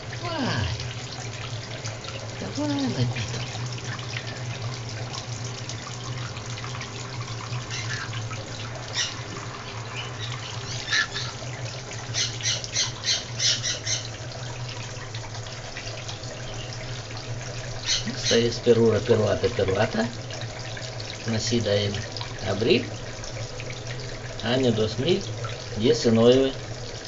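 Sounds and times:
tap water running into bathtub: 0.0s - 27.0s
parrot squawks: 7.6s - 8.2s, 8.9s - 11.5s, 12.1s - 14.1s, 17.8s - 18.4s.

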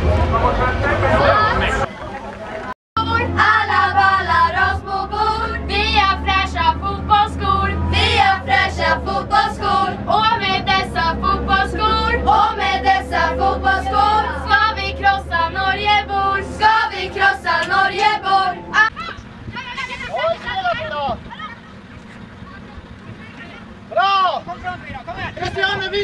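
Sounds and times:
bus engine humming: 0.0s - 26.0s
girls singing together: 3.0s - 18.9s.

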